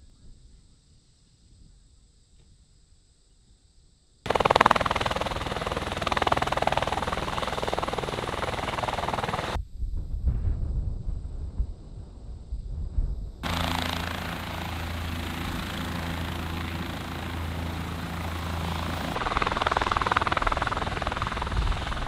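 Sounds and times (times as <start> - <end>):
helicopter rotor and turbine noise: 4.3 - 9.6, 13.4 - 22.0
uneven helicopter rotor thumping: 4.3 - 9.6, 13.4 - 22.0.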